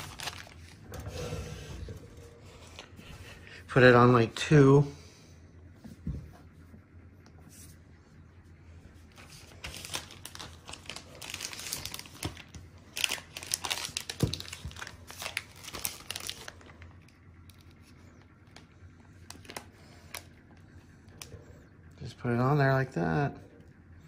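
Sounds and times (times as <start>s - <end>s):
plastic bag crinkling: 0.0s - 0.9s, 9.1s - 21.3s.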